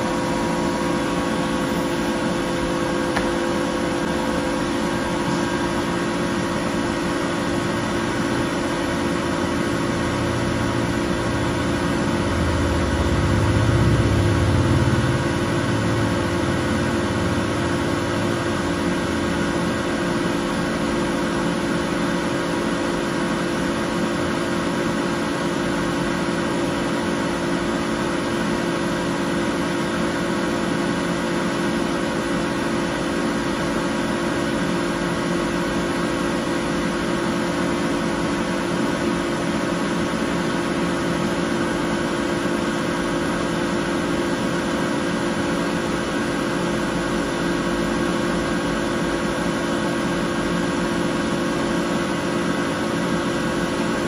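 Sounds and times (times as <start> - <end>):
laser cutter humming: 0.0 - 54.0.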